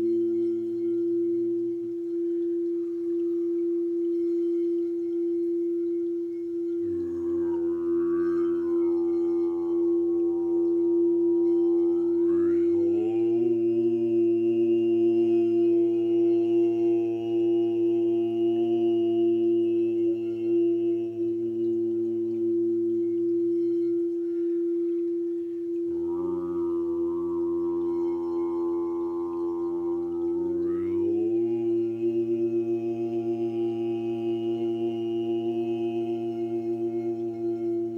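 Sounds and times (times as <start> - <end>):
steady held tone: 0.0 - 37.9
sustained chanted tones: 6.6 - 23.8, 25.8 - 37.9.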